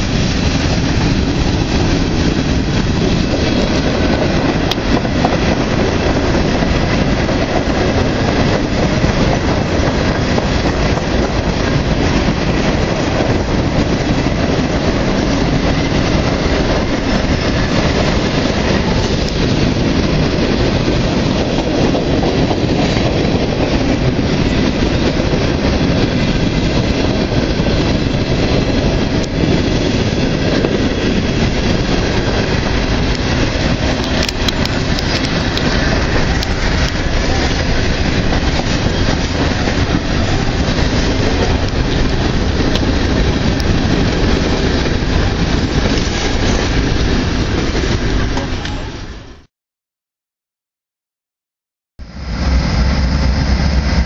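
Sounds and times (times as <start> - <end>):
train wheels on rails: 0.0 - 49.5, 52.0 - 54.0.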